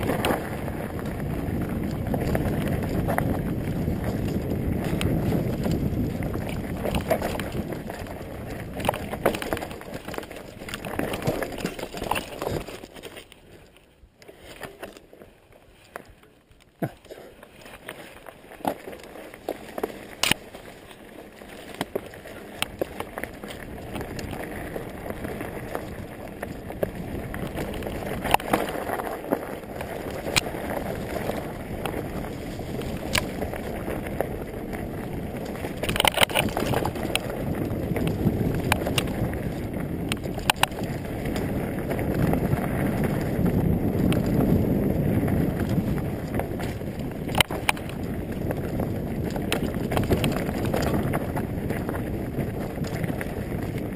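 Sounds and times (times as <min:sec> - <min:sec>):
wind rushing over microphone: 0:00.0 - 0:12.7, 0:22.6 - 0:53.9
bike clicks and rattles: 0:00.0 - 0:53.9
bike tyres rolling on dirt: 0:00.0 - 0:53.9.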